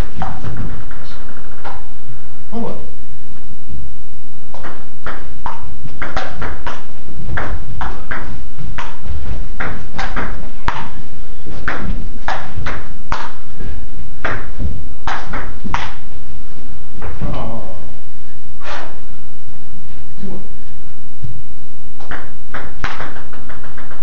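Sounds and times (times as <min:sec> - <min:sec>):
ball bouncing on table: 0:04.5 - 0:13.5, 0:14.2 - 0:16.1, 0:22.0 - 0:24.0
ball hitting paddles: 0:04.5 - 0:13.6, 0:14.2 - 0:16.1, 0:22.0 - 0:24.0.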